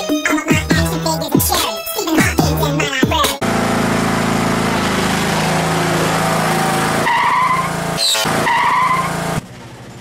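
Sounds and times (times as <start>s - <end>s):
engine running steadily: 3.4s - 10.0s
short high squeals: 7.0s - 9.2s.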